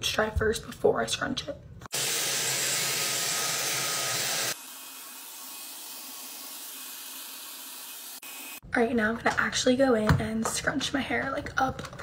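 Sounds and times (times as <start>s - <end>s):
hair dryer blowing air: 1.9s - 8.6s.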